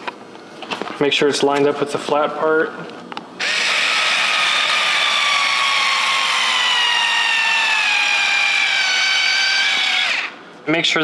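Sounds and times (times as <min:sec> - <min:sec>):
cordless drill motor whine: 0:03.4 - 0:10.4.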